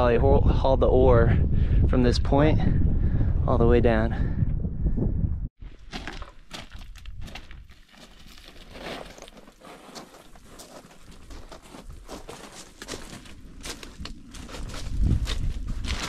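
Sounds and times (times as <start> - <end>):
footsteps crunching on gravel: 5.7 - 16.0
small stones clattering: 5.9 - 16.0.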